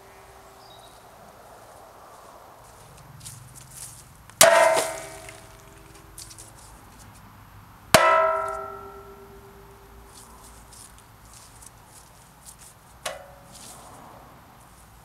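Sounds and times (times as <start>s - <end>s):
metal axe clanging on stump: 4.4s - 6.4s, 8.0s - 10.1s, 13.0s - 13.6s.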